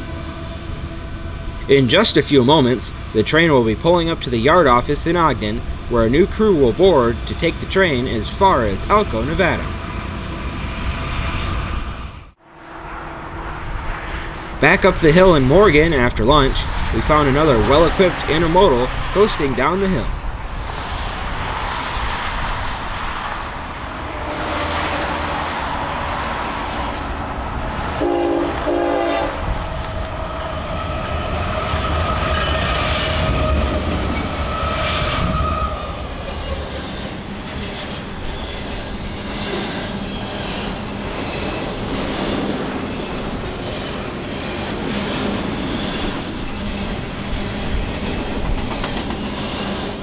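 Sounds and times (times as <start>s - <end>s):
locomotives rumbling: 0.0s - 50.0s
train horn chord: 28.0s - 29.5s
train wheels clattering: 31.0s - 50.0s.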